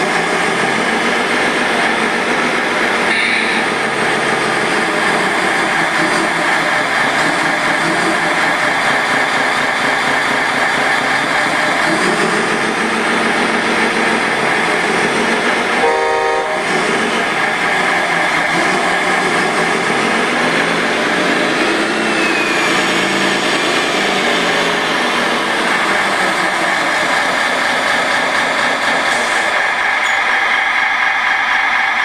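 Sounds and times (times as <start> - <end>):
short horn toot: 15.8 - 16.7.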